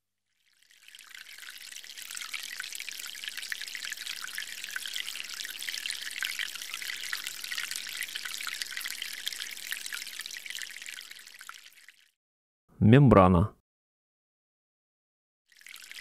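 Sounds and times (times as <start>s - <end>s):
liquid trickling and pouring: 0.3s - 12.2s, 15.5s - 16.0s.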